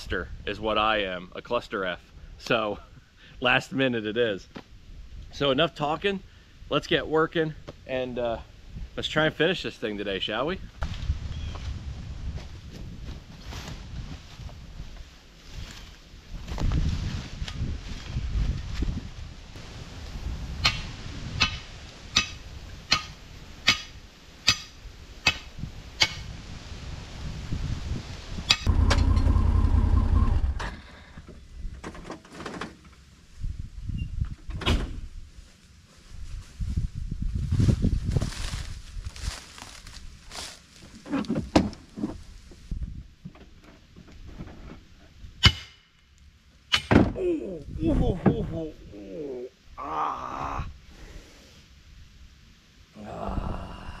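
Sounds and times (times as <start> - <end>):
rustling in dry leaves: 10.8 - 28.4, 35.2 - 41.1.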